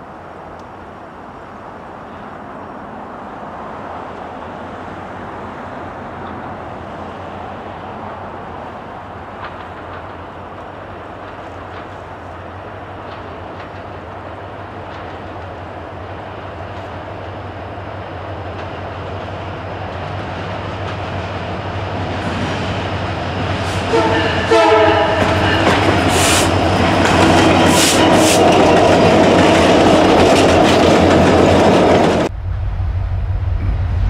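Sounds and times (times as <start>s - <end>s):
diesel locomotive engine drone: 0.0s - 34.0s
train rumbling: 0.0s - 34.0s.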